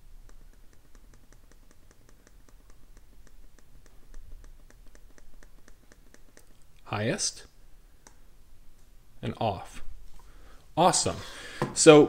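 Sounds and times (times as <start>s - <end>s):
faint regular clicking: 0.0s - 6.9s, 8.0s - 8.9s.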